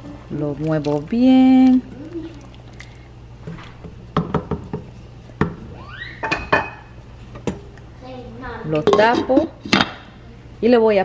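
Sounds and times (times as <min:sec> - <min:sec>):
wooden spoon stirring soup: 0:00.0 - 0:05.6
spoon knocking metal pot: 0:08.7 - 0:09.5.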